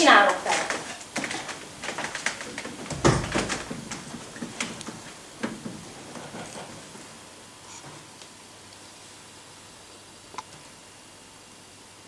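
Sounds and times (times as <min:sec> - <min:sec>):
footsteps on wooden floor: 0:00.3 - 0:07.1
heavy thump: 0:02.6 - 0:07.0.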